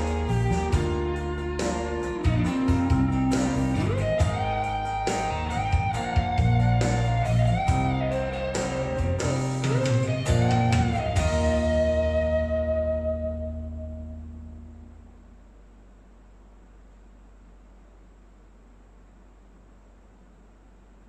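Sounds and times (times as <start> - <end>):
drums and bass: 0.0 - 15.1
lead guitar with string bends: 0.0 - 15.3.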